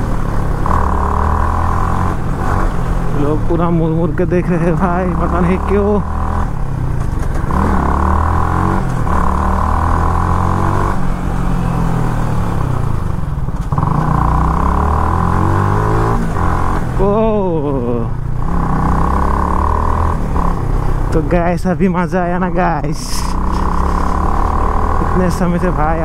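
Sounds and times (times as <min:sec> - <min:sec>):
motorcycle engine at full throttle: 0:00.0 - 0:26.0.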